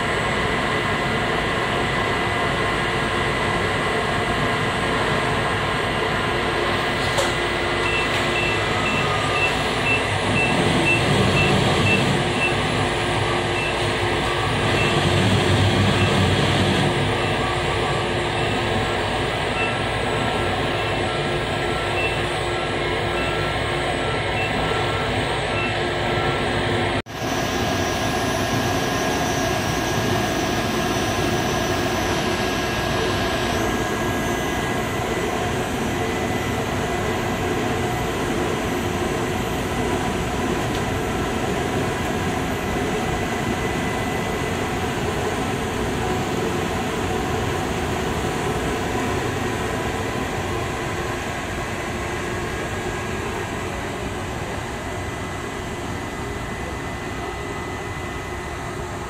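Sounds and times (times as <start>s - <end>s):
industrial machine din: 6.9s - 26.2s
machine whining tones: 7.2s - 54.0s.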